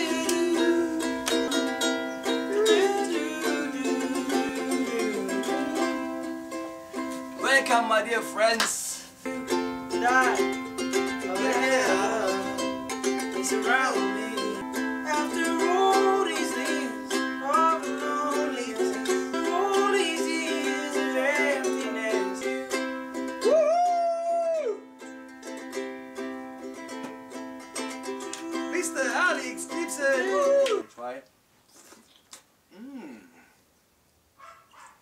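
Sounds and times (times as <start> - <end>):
man singing: 0.0 - 6.3, 7.4 - 9.1, 9.9 - 22.8, 28.2 - 30.8
ukulele strumming: 0.0 - 30.8.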